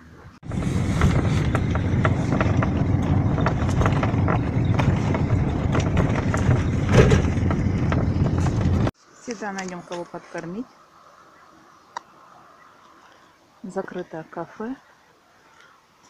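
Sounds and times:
road and engine rumble: 0:00.0 - 0:10.6.

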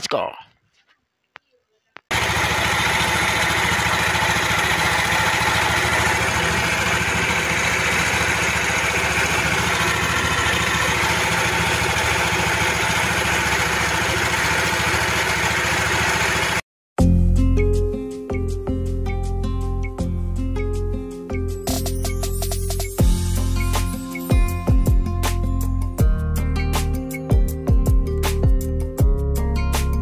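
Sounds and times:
scooter engine idling: 0:02.1 - 0:16.6.

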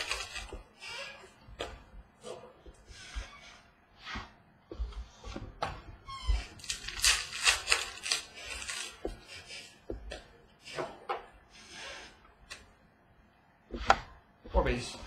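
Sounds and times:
foil wrappers crinkling: 0:00.0 - 0:00.5, 0:06.6 - 0:09.0
cards sliding and flipping: 0:06.6 - 0:09.7.

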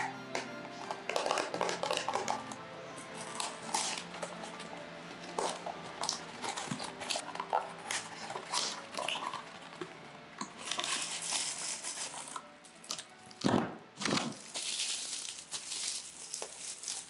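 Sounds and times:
bubble wrap crinkling: 0:00.0 - 0:17.0
paper rustling and scraping: 0:10.5 - 0:13.0, 0:14.0 - 0:17.0.

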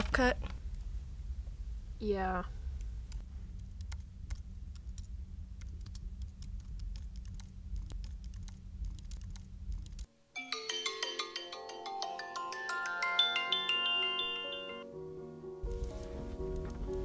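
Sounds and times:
fingers typing on keyboard: 0:03.8 - 0:10.1
phone alarm ringtone melody: 0:10.4 - 0:14.9.

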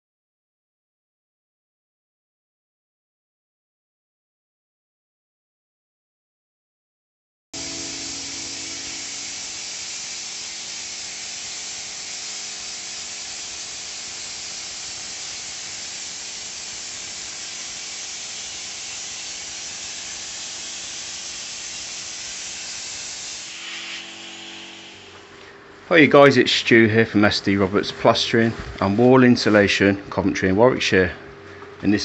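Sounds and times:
spray gun hissing: 0:07.6 - 0:25.3.

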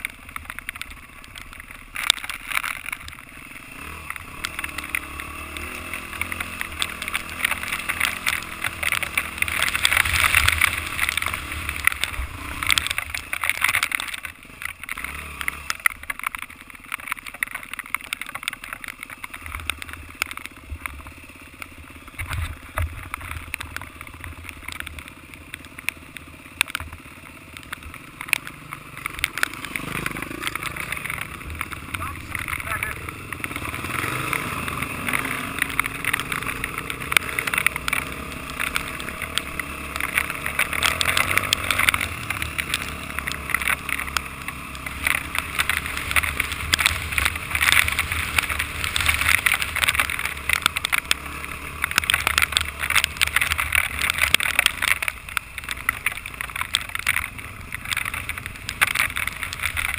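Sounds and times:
dirt bike engine: 0:00.0 - 0:59.9
rush of noise: 0:20.6 - 0:59.9.

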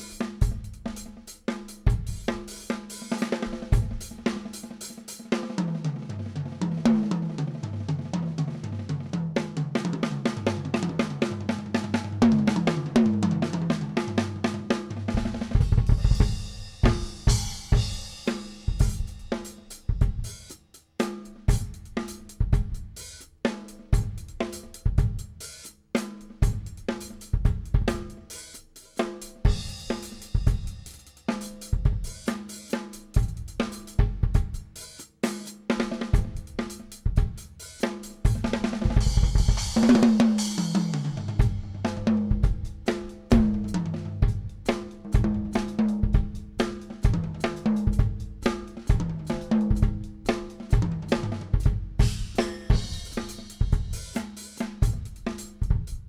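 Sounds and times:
heavy bass drum: 0:00.0 - 0:05.0, 0:05.6 - 0:56.0
drum kit playing: 0:00.0 - 0:56.0
cymbals: 0:52.0 - 0:55.4.

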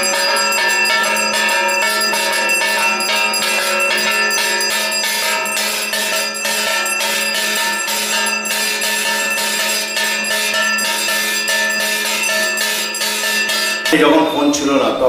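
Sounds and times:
bells rung rapidly: 0:00.0 - 0:14.8.

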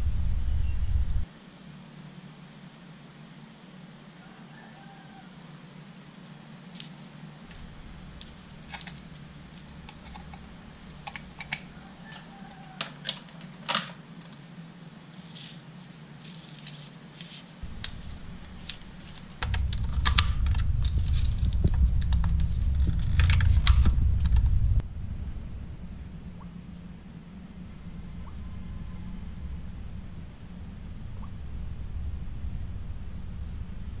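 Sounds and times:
low rumbling handling noise: 0:00.0 - 0:01.3, 0:06.8 - 0:14.6, 0:16.2 - 0:34.0
steady low hum: 0:00.0 - 0:34.0
wires and tape clicking: 0:06.8 - 0:14.4, 0:16.2 - 0:24.8
tape rustling: 0:16.2 - 0:24.5.

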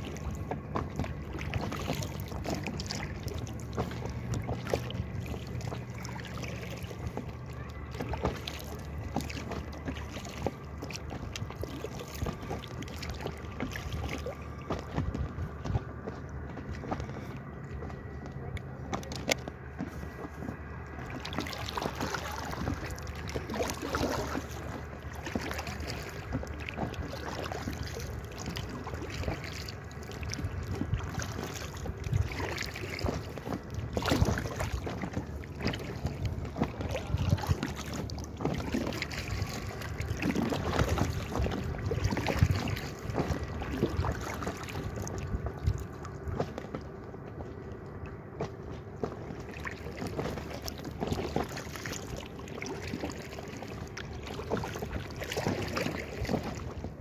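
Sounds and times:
water lapping against kayak hull: 0:00.0 - 0:57.0.

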